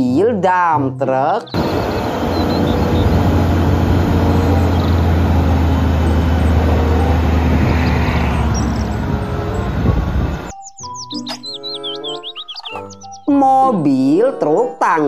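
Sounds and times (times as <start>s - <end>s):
diesel truck engine droning: 1.6s - 10.5s.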